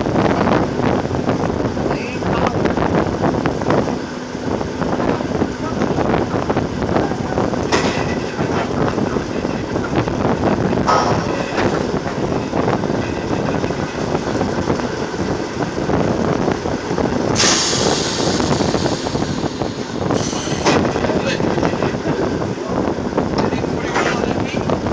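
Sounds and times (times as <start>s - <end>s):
heavy machinery running: 0.0s - 24.9s
loud hiss: 17.4s - 20.9s.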